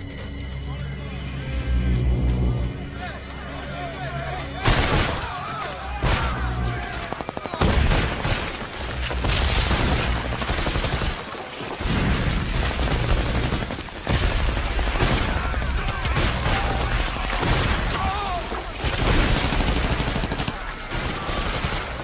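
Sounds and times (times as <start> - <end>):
rapid automatic gunfire: 6.8 - 17.9, 18.5 - 22.0.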